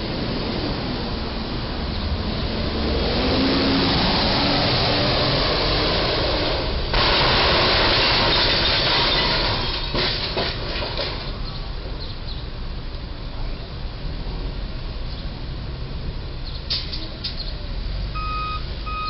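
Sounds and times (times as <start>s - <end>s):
debris clattering: 6.9s - 11.6s
truck crashing into bridge: 6.9s - 11.6s.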